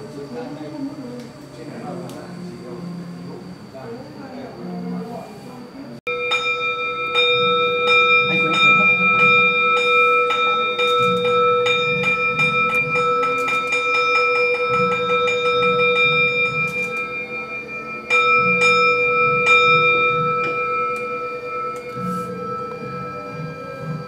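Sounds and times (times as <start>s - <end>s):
temple bell ringing: 6.1s - 24.0s.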